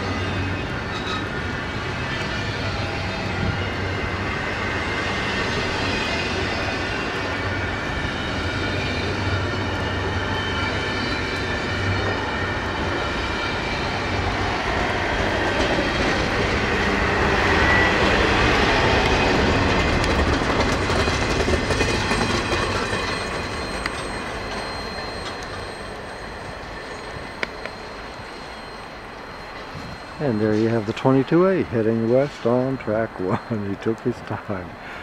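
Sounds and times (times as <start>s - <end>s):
thin steady wheel squeal: 0.0s - 35.0s
train wheels clicking over rail joints: 8.3s - 28.5s.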